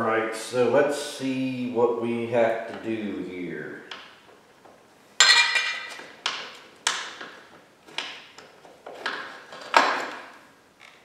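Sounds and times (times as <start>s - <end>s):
metal parts clanking: 5.2s - 6.1s.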